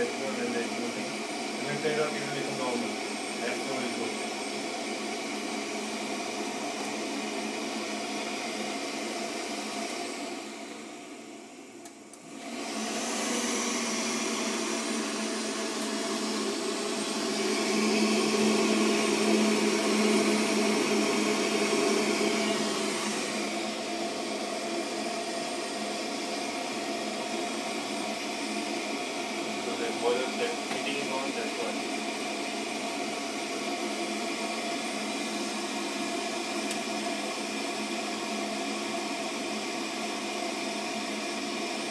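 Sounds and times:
boiler fan running: 0:12.1 - 0:39.1.

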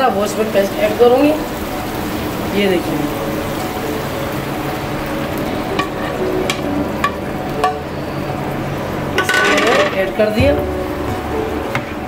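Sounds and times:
puree sizzling in hot oil: 0:00.0 - 0:12.0.

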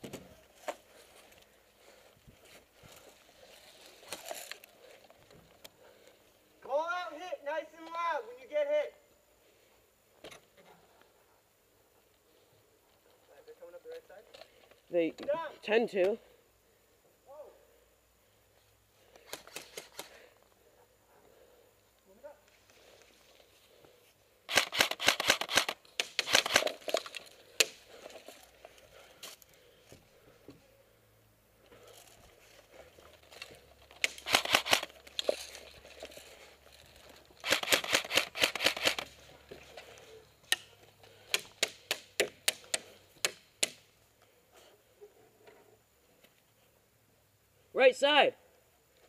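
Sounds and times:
airsoft rifle firing: 0:24.5 - 0:26.8, 0:34.1 - 0:34.9, 0:37.4 - 0:39.1.

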